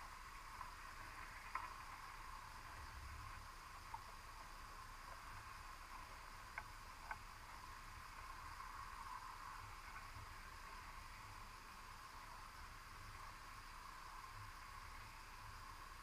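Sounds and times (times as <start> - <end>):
underwater hiss and rumble: 0.0 - 16.0
faint clicks: 0.2 - 11.5.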